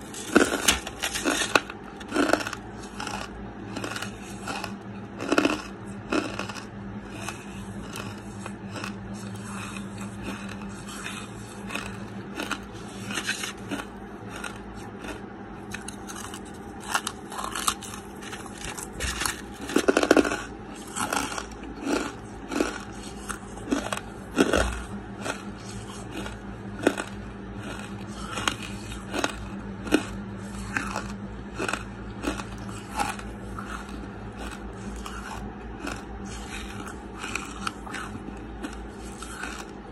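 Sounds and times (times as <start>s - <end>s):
charcoal being chewed: 0.0s - 39.9s
low steady hum: 0.0s - 39.9s.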